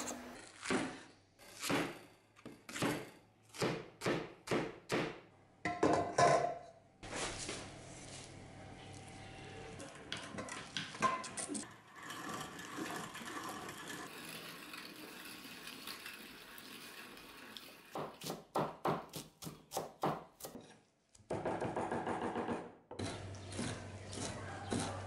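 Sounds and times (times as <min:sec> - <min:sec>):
hand-cranked meat grinder turning: 0:09.8 - 0:18.3
cleaver chopping on wooden board: 0:18.0 - 0:20.6.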